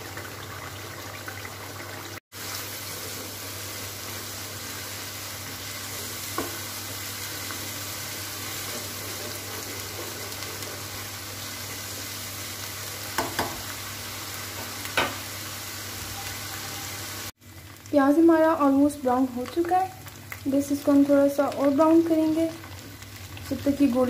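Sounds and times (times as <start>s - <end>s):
onion sizzling in hot oil: 0.0s - 24.0s
spatula scraping a pan: 8.4s - 11.0s.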